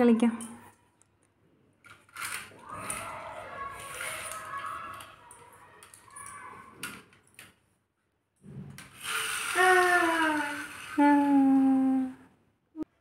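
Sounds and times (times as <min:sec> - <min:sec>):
child vocalizing: 0:09.5 - 0:12.2.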